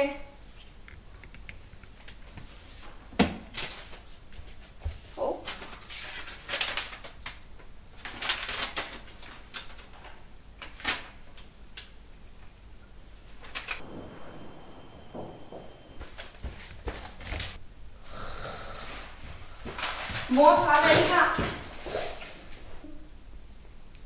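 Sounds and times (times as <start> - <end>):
paper rustling: 1.8 - 11.4, 13.3 - 13.8, 19.6 - 22.6.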